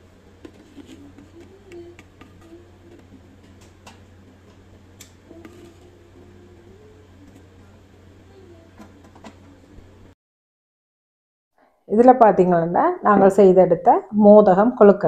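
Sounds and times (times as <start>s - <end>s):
steady low hum: 0.0s - 10.2s.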